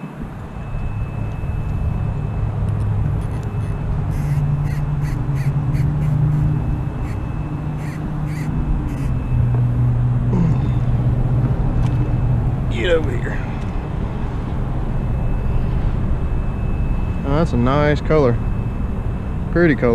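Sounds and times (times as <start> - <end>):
steady low hum: 0.0 - 19.9
crow cawing: 3.3 - 9.2.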